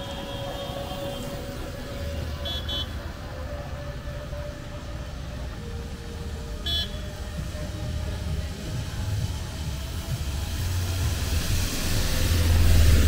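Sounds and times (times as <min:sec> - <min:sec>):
vehicle horn beeps: 0:00.0 - 0:01.4, 0:02.4 - 0:03.0, 0:06.6 - 0:07.2
traffic on wet road: 0:00.0 - 0:13.0.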